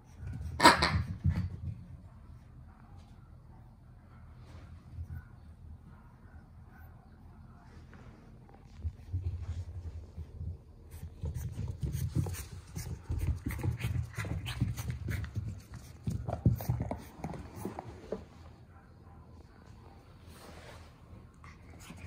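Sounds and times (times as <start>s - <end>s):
paws and toys scuffling: 7.7s - 18.6s.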